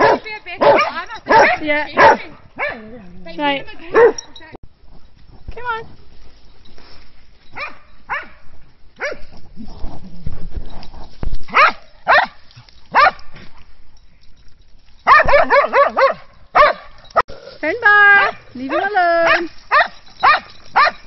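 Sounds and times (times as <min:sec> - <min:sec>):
dogs barking: 0:00.0 - 0:02.9, 0:03.9 - 0:04.3, 0:07.6 - 0:08.4, 0:09.0 - 0:09.3, 0:11.5 - 0:13.3, 0:15.1 - 0:17.2, 0:18.1 - 0:21.0.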